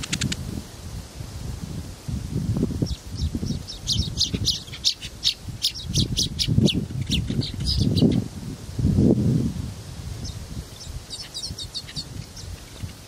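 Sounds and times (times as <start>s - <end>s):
nestlings begging chirps: 2.8s - 8.2s, 10.2s - 13.0s.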